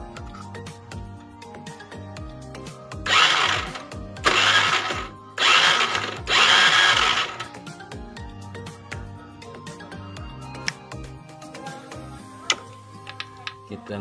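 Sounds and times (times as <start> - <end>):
background music: 0.0 - 14.0
electric starter spinning engine: 3.0 - 7.6.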